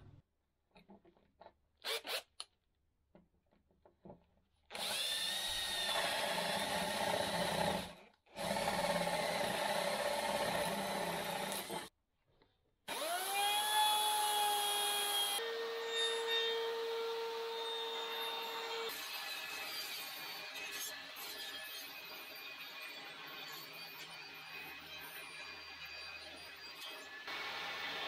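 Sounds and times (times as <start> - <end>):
cordless drill boring into wood: 1.8 - 2.4, 4.7 - 11.9, 12.9 - 16.0.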